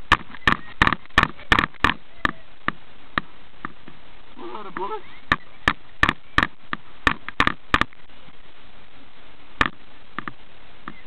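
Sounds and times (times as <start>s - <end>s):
sharp clicks and knocks: 0.0s - 4.0s, 5.3s - 8.0s, 9.6s - 11.0s.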